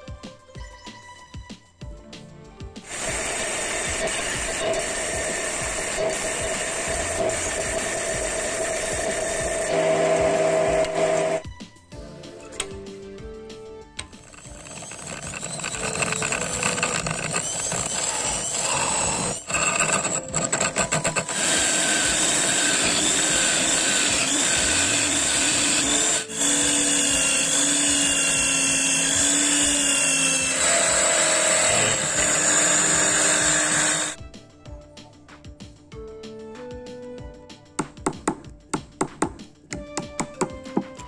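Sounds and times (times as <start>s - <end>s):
music: 0.0s - 41.0s
chisel cutting wood: 2.8s - 11.4s, 14.0s - 34.2s
electric drill running: 2.8s - 11.4s, 14.0s - 34.2s.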